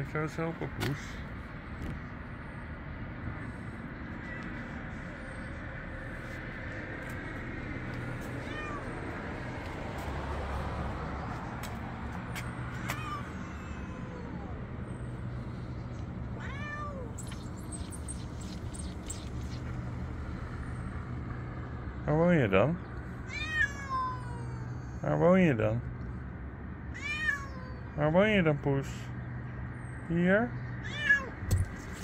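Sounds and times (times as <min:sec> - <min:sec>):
cat meowing: 0:04.1 - 0:04.8, 0:08.2 - 0:09.2, 0:12.7 - 0:14.6, 0:16.4 - 0:19.2, 0:23.3 - 0:25.0, 0:27.0 - 0:27.8, 0:30.8 - 0:31.6
low background hum: 0:13.0 - 0:25.1.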